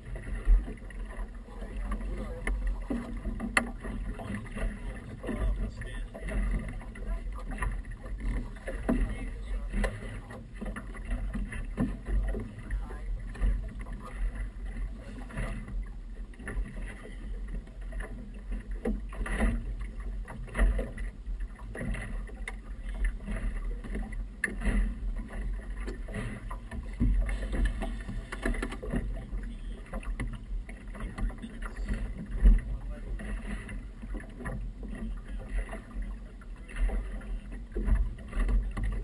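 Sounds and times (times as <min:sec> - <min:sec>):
water slapping against boat hull: 0:00.0 - 0:39.0.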